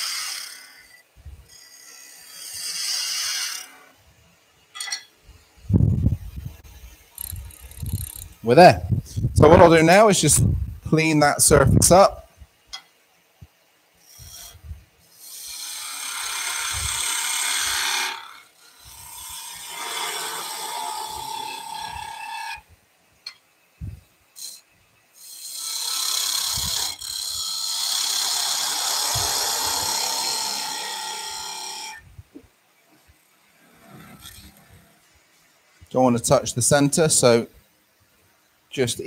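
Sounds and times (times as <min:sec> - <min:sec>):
lathe tool cutting wood: 0:00.0 - 0:03.9, 0:15.2 - 0:22.6, 0:25.2 - 0:32.0.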